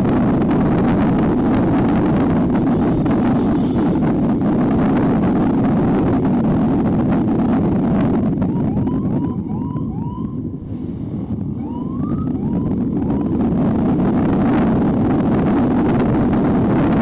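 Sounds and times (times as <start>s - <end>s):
motorcycle engine rumble: 0.0s - 17.0s
wind buffeting microphone: 0.0s - 17.0s
siren whoops: 8.4s - 10.5s, 11.5s - 13.7s.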